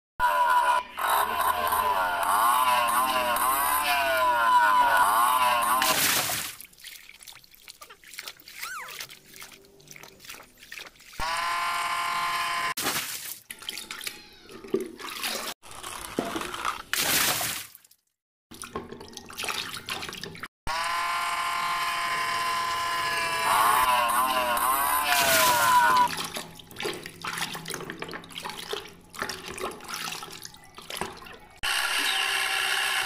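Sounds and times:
water splashing in a basin: 5.8s - 11.2s, 12.8s - 20.5s, 25.1s - 31.6s.

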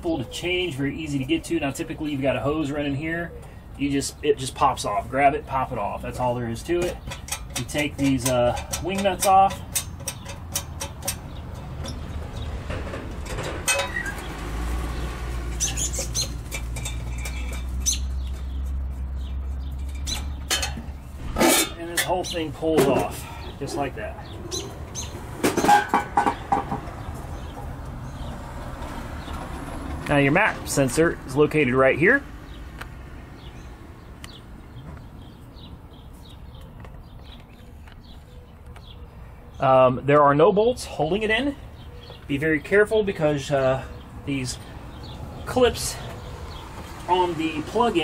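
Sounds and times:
small bird chirping: 13.7s - 21.2s, 22.0s - 28.4s.

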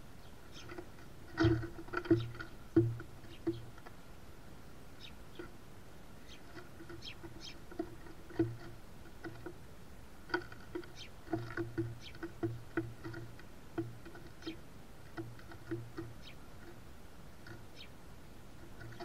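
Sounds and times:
birds pecking on wooden feeder: 0.3s - 4.2s, 4.9s - 19.0s.

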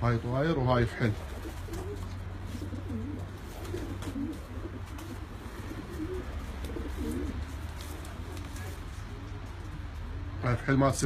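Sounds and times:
pigeons cooing: 0.9s - 9.6s.

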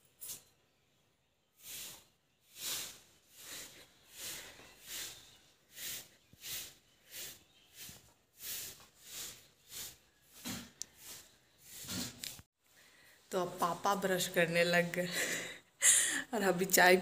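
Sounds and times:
broom sweeping dirt: 1.5s - 12.4s.

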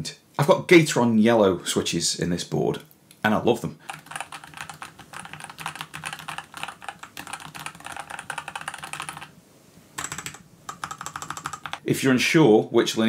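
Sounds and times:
fast typing on mechanical keyboard: 3.8s - 9.3s, 10.0s - 11.8s.

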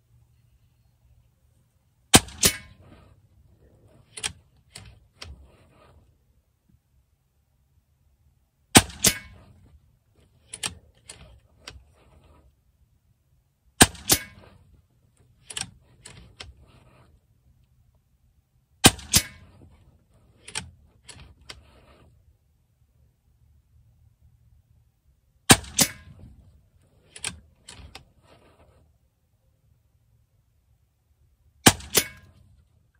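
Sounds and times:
air rifle shots cracking: 2.1s - 3.0s, 8.7s - 9.5s, 18.8s - 19.5s, 25.5s - 26.2s, 31.6s - 32.3s
metallic clicks of rifle action: 2.1s - 6.1s, 8.8s - 12.4s, 13.8s - 17.2s, 18.8s - 22.1s, 25.5s - 28.8s, 31.6s - 32.7s.

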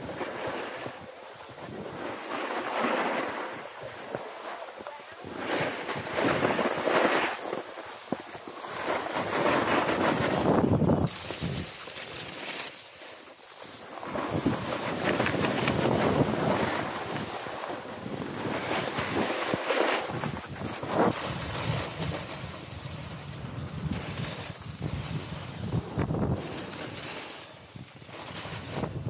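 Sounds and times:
snowboard scraping through snow: 0.0s - 29.0s
wind rushing over microphone: 9.0s - 11.8s, 13.9s - 29.0s.

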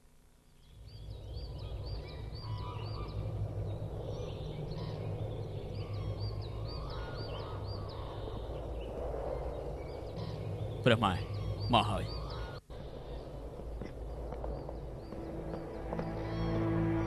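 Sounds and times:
steady low rumble: 0.0s - 17.0s
birds chirping: 0.5s - 17.0s.

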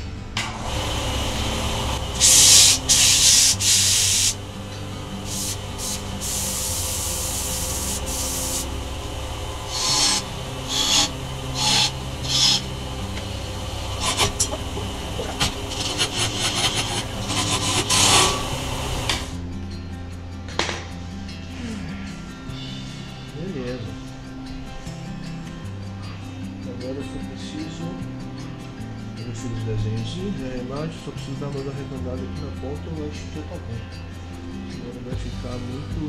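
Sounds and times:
wood lathe running: 0.4s - 19.4s
sandpaper rubbing on wood: 2.2s - 4.4s, 5.2s - 8.7s, 9.7s - 12.7s, 14.0s - 14.6s, 15.2s - 19.3s.

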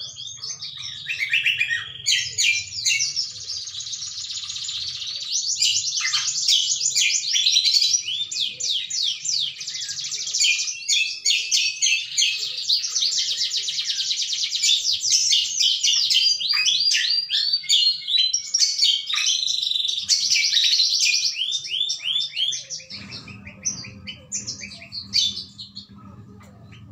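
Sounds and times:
bird singing rapid chattering phrases: 0.0s - 26.9s
low hum: 22.9s - 26.9s.

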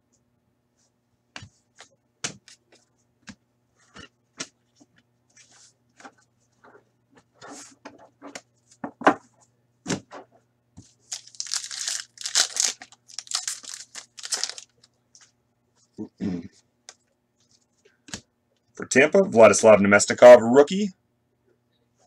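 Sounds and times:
foil pack crinkling: 11.0s - 14.9s.

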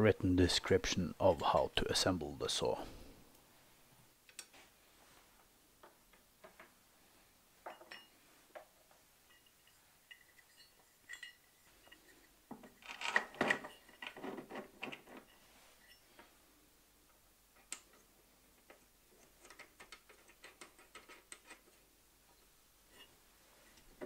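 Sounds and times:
metal parts clicking and clinking: 7.6s - 16.3s
knocks and rattles: 10.0s - 15.3s.

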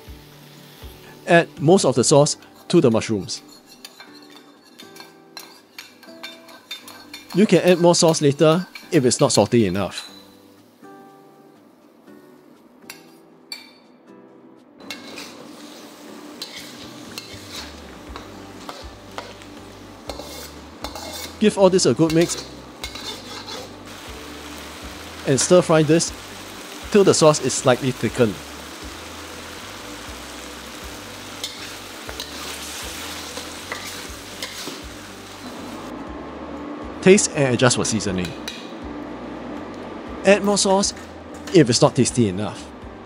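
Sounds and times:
food sizzling in a pan: 0.0s - 1.6s, 2.3s - 12.0s, 14.8s - 35.9s
utensil scraping a pan: 2.5s - 7.4s, 14.8s - 19.4s, 20.1s - 23.8s.

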